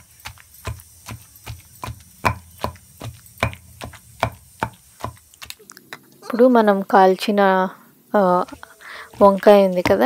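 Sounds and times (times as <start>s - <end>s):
pestle pounding in stone mortar: 0.0s - 5.6s, 8.4s - 10.0s.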